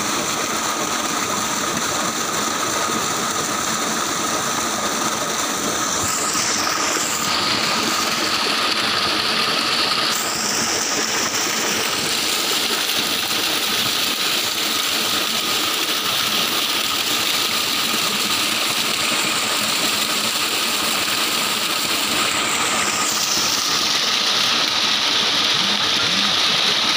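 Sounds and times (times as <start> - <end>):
pump whine: 0.0 - 26.9
water gushing into tank: 0.0 - 26.9.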